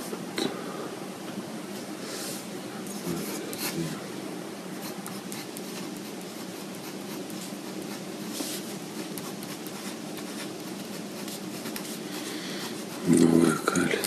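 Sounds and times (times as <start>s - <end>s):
room hum: 0.0s - 14.0s
small scratches and taps: 4.9s - 12.0s.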